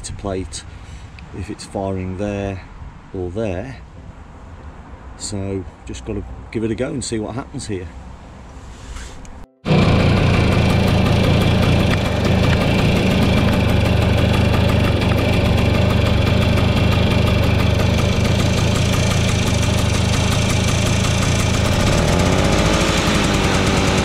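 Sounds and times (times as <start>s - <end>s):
scooter engine idling: 9.7s - 24.0s.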